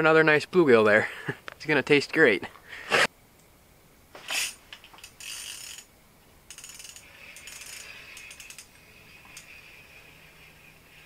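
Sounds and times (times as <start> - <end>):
fishing reel gear clicks: 4.4 - 5.9, 6.5 - 9.9.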